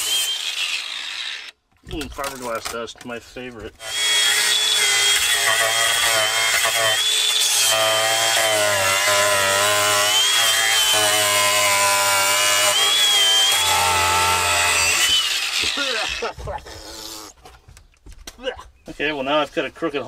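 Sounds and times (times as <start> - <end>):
angle grinder cutting fiberglass: 0.0 - 1.6, 3.8 - 17.4.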